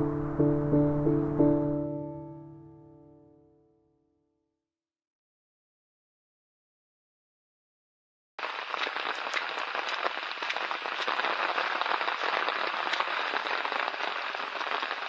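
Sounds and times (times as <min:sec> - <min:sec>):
steady rain falling: 0:08.4 - 0:15.0.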